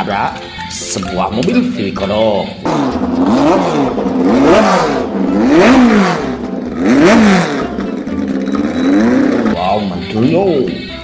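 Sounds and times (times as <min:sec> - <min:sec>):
car engine revving: 0:02.6 - 0:09.7.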